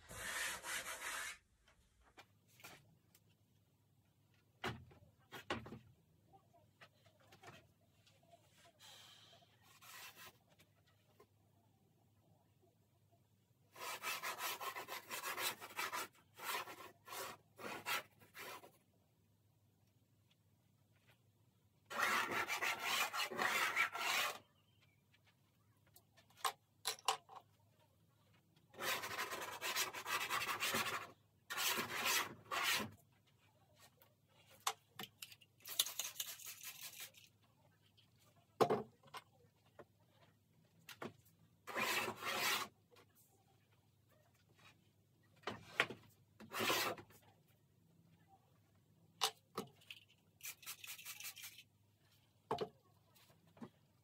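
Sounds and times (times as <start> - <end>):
charcoal scraping on canvas: 0.1 - 1.4.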